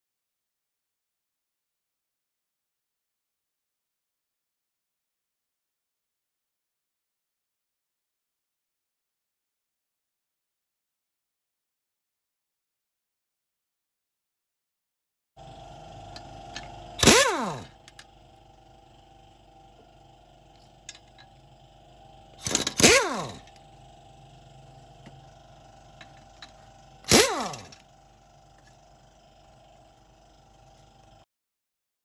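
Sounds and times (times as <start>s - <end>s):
faint steady hum: 15.4s - 31.3s
impact wrench bursts: 16.0s - 18.2s, 20.6s - 28.8s.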